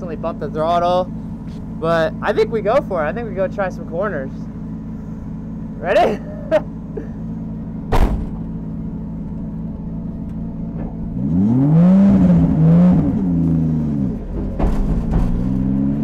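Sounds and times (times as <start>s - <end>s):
car engine idling and revving: 0.0s - 16.0s
sharp knock: 7.9s - 8.4s.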